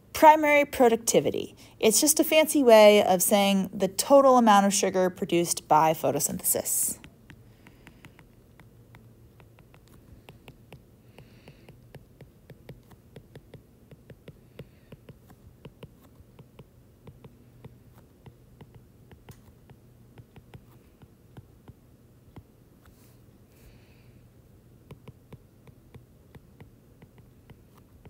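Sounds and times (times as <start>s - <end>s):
stylus tapping on glass screen: 7.0s - 22.5s.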